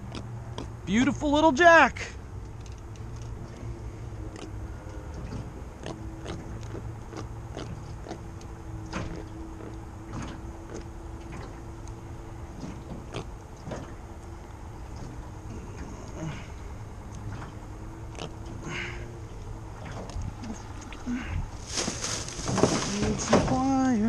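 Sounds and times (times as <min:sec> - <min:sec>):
faint hum: 0:00.0 - 0:24.0
knocks and clicks in aluminum boat: 0:04.3 - 0:16.0, 0:19.4 - 0:21.0, 0:21.6 - 0:24.0.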